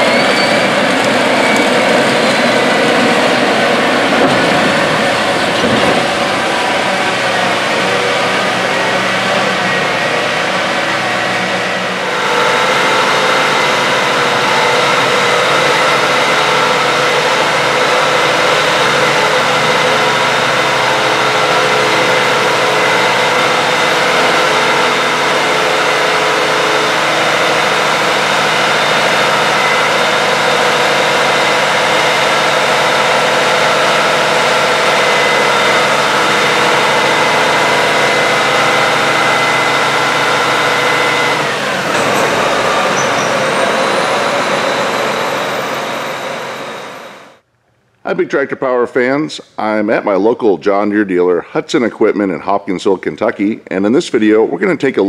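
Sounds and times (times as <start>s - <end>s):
tractor diesel engine running: 0.0s - 47.5s.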